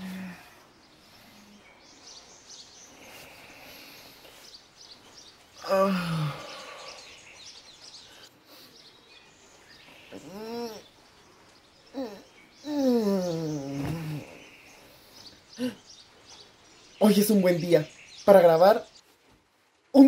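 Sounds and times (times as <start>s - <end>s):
faint bird chirps: 0.0s - 19.2s
man groaning: 5.6s - 6.9s
man yawning: 5.6s - 7.1s, 11.9s - 14.4s.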